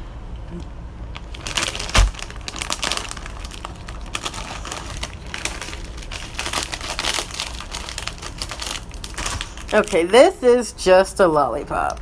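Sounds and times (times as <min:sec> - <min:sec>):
plastic packaging crinkling: 0:01.1 - 0:10.6.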